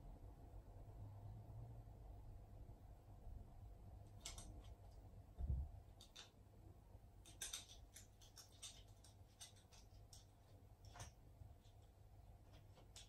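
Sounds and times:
dog claws clicking on floor: 4.1s - 5.0s, 5.9s - 6.4s, 7.2s - 13.0s.

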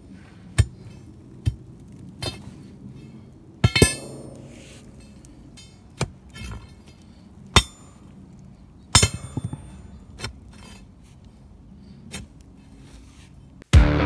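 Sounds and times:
loose dirt scattering: 0.0s - 13.6s
shovel clinking on stony soil: 3.6s - 8.1s, 8.9s - 10.9s.

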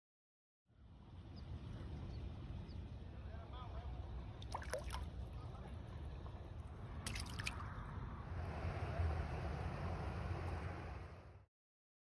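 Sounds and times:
fish splashing at water surface: 4.4s - 5.1s, 7.1s - 7.8s
water dripping and sloshing: 4.4s - 5.1s, 7.0s - 7.8s.

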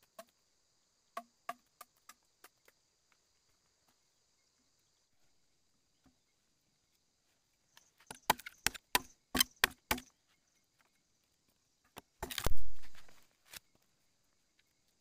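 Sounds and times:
bamboo splitting crack: 8.0s - 10.1s, 12.0s - 13.6s
knife chopping bamboo: 8.1s - 10.1s, 12.2s - 12.6s.

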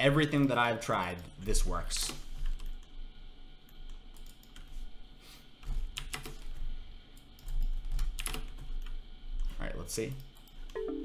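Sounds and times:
low background hum: 0.0s - 11.0s
computer keyboard typing: 3.7s - 4.7s, 5.6s - 6.5s, 7.2s - 10.8s.

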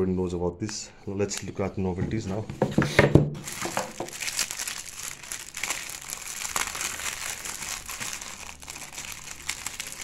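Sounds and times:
plastic bag crinkling: 3.4s - 10.0s.

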